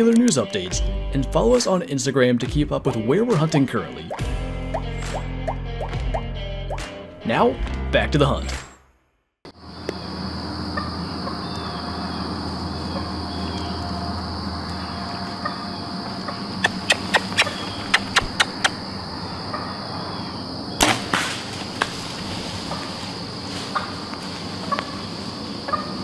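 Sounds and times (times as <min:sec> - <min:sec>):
insect chorus: 0:09.5 - 0:26.0
sharp clicks: 0:16.6 - 0:18.8.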